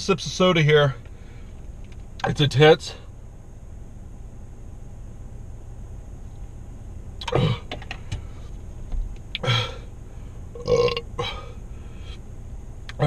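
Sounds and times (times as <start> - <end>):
man belching: 7.2 - 7.7, 10.6 - 11.5.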